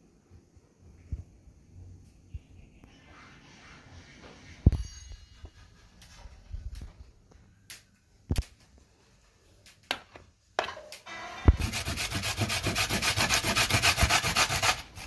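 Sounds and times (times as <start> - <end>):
kitchen knocks and clicks: 9.9 - 11.0.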